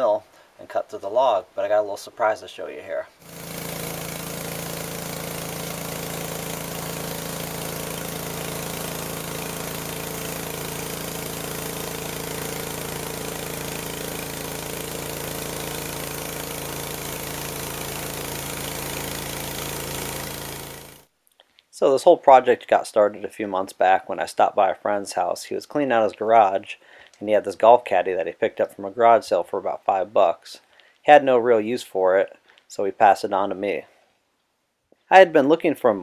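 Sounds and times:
small engine running under load: 0:03.2 - 0:21.1.

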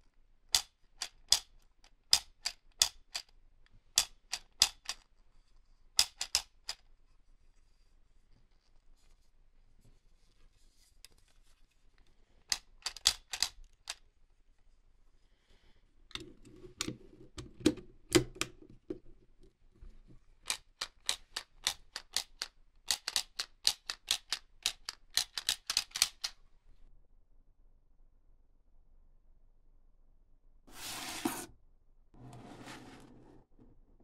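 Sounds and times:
quick plastic clicks: 0:12.5 - 0:14.0, 0:20.4 - 0:26.4.

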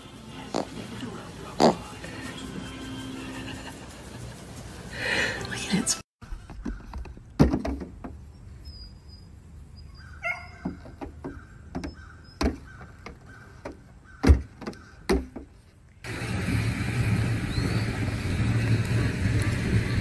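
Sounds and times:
hooves knocking on metal: 0:10.5 - 0:15.7.

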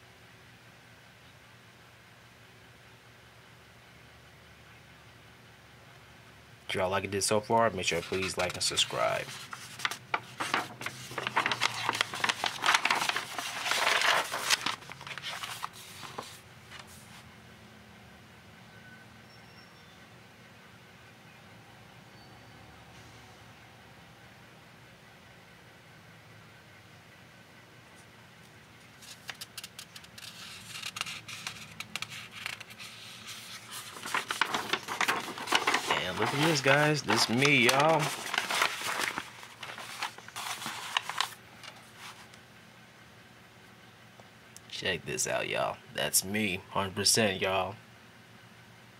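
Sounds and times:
paper page rustling: 0:07.7 - 0:17.2, 0:28.9 - 0:42.3.

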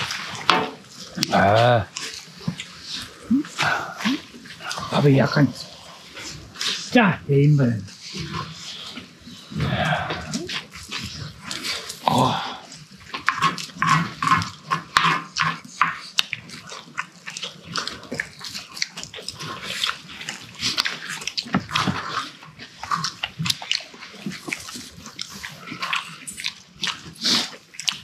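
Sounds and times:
chewing and lip-smacking: 0:00.0 - 0:06.9, 0:07.9 - 0:28.0.

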